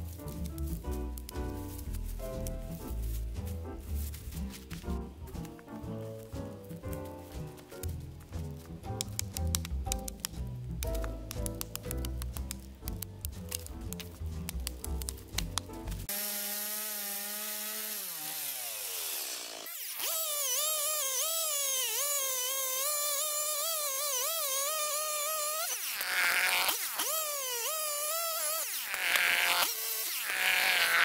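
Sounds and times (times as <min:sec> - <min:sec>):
chainsaw cutting log: 0:16.1 - 0:31.0.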